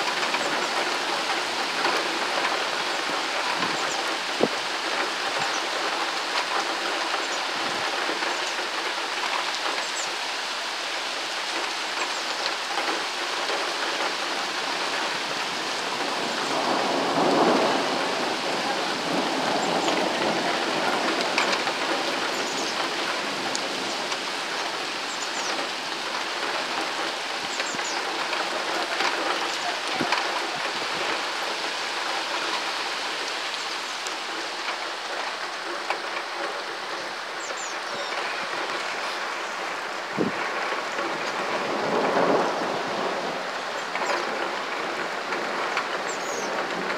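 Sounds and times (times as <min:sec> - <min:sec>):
heavy rain pouring: 0:00.0 - 0:46.9
thunder rolling: 0:13.5 - 0:32.7, 0:38.2 - 0:46.9.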